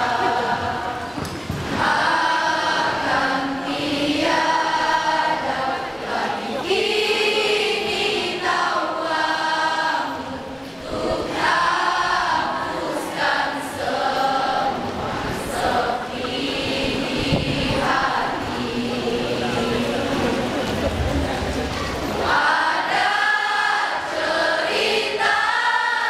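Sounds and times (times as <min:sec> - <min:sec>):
choir singing: 0:00.0 - 0:26.0.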